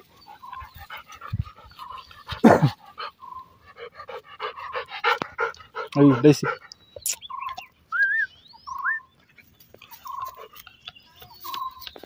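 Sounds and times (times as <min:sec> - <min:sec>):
dog panting: 0:00.0 - 0:06.9.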